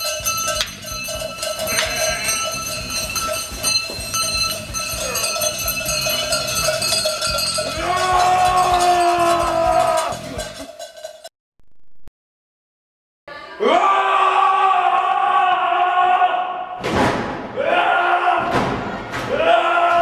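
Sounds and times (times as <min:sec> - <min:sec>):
sheep bells clanging: 0:00.0 - 0:11.3.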